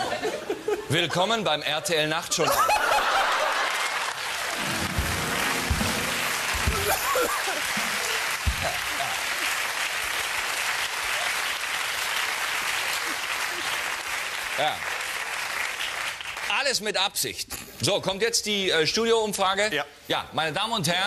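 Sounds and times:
audience applauding: 0:02.7 - 0:16.7.

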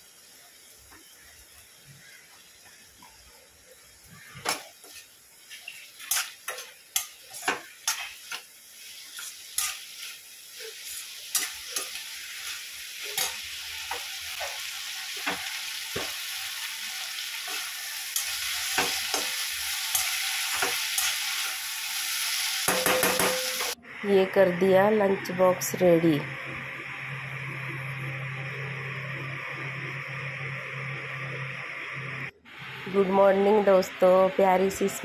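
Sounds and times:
frying sizzle: 0:00.0 - 0:35.0
metal spoon scraping a pan: 0:04.4 - 0:08.4, 0:09.1 - 0:14.6, 0:17.4 - 0:21.5.

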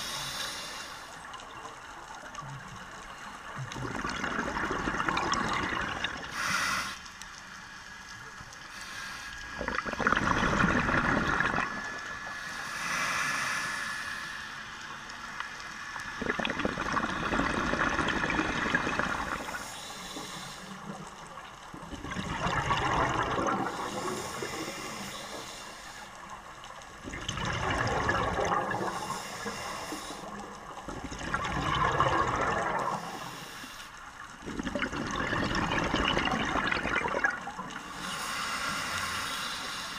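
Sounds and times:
regulator inhale hiss: 0:00.0 - 0:01.4, 0:06.2 - 0:07.8, 0:08.6 - 0:09.7, 0:12.0 - 0:16.0, 0:19.2 - 0:21.6, 0:23.5 - 0:26.8, 0:28.7 - 0:30.7, 0:32.9 - 0:34.2, 0:37.7 - 0:39.9
exhaled bubbles rushing: 0:03.6 - 0:06.3, 0:09.6 - 0:12.0, 0:16.2 - 0:19.6, 0:21.8 - 0:24.6, 0:27.0 - 0:29.1, 0:30.8 - 0:33.2, 0:34.4 - 0:37.8.

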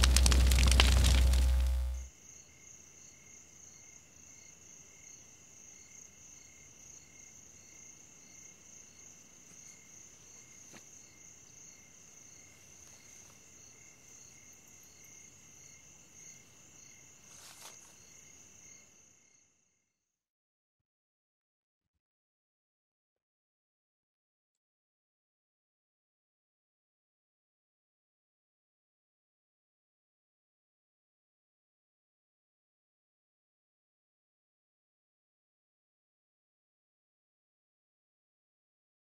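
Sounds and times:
loud deep noise: 0:00.0 - 0:02.1
crickets chirping: 0:00.0 - 0:19.8.

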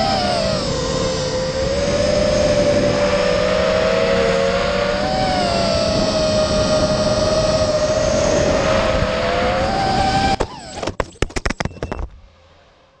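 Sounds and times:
drone motors whining: 0:00.0 - 0:13.0
drone crashing and tumbling: 0:10.4 - 0:12.3.

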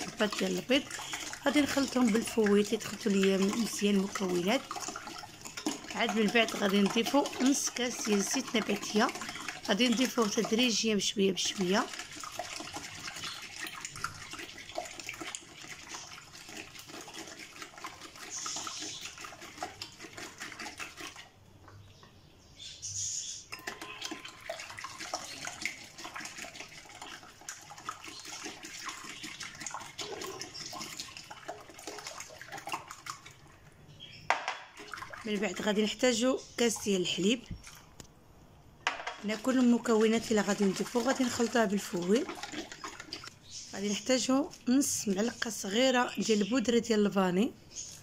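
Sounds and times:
whisk beating egg in bowl: 0:00.0 - 0:21.3, 0:23.5 - 0:33.5, 0:34.8 - 0:37.6, 0:39.2 - 0:46.5
oil pouring: 0:00.0 - 0:21.7, 0:23.5 - 0:33.8, 0:38.8 - 0:43.4.

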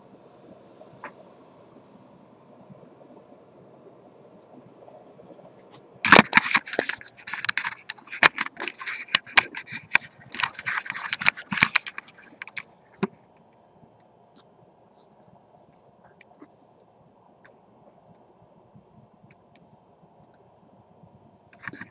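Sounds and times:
case handling clicks and rattles: 0:06.1 - 0:12.7.

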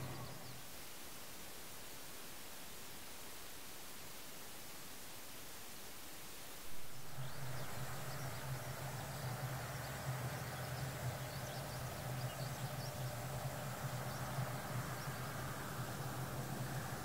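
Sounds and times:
low hum: 0:00.0 - 0:00.6, 0:06.7 - 0:17.0
soft hiss: 0:00.0 - 0:17.0.

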